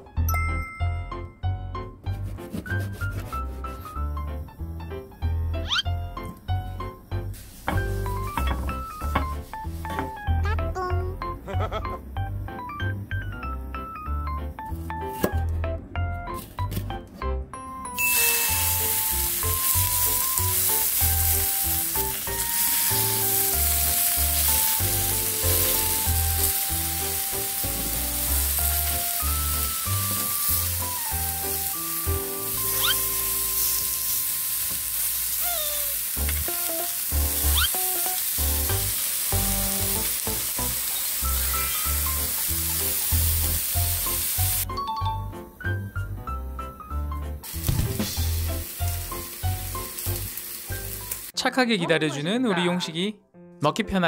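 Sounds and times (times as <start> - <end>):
background music: 0.0 - 34.6, 38.2 - 54.0
steak sizzling in pan: 7.2 - 9.9, 18.0 - 44.7, 47.4 - 51.4.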